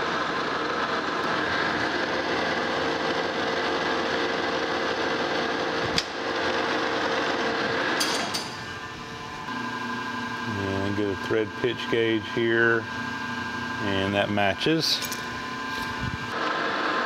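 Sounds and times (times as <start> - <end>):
metal lathe humming: 0.0 - 17.0.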